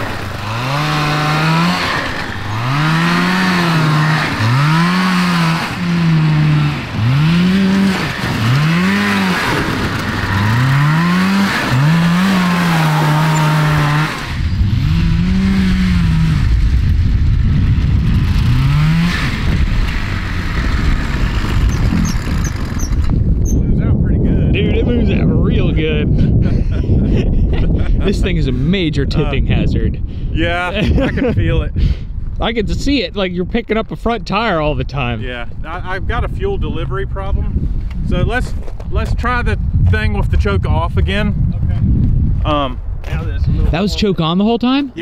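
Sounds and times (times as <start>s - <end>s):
go kart engine revving: 0.0s - 23.3s.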